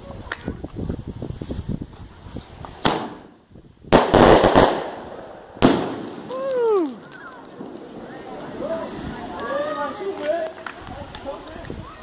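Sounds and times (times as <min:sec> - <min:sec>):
firework burst crackling: 0:00.7 - 0:11.8
firework launch bangs: 0:02.7 - 0:09.4.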